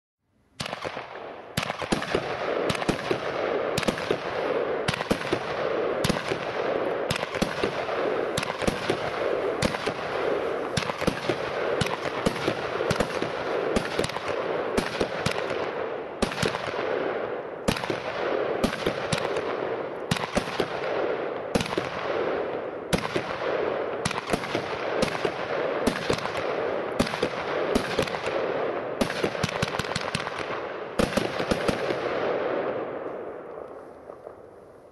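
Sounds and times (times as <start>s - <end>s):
firework battery rapid bangs: 1.6s - 16.8s.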